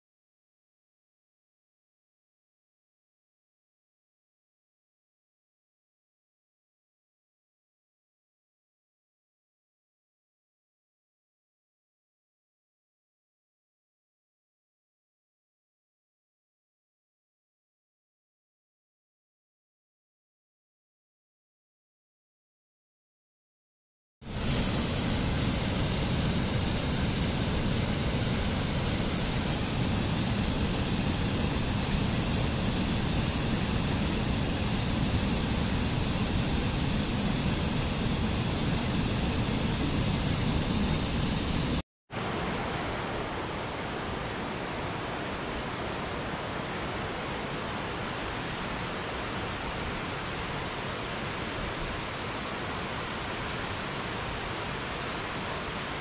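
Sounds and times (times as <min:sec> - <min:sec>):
duller rush of falling water: 0:24.2 - 0:56.0
waterfall rushing: 0:24.3 - 0:56.0.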